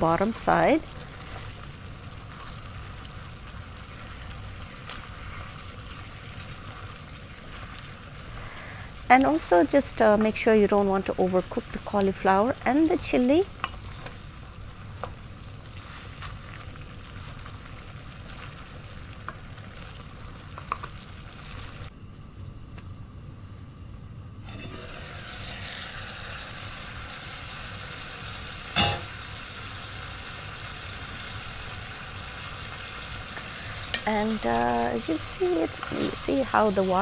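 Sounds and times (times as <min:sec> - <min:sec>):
meat and vegetables sizzling: 0:00.0 - 0:21.9, 0:24.4 - 0:37.0
loud metal clank: 0:28.8 - 0:29.1.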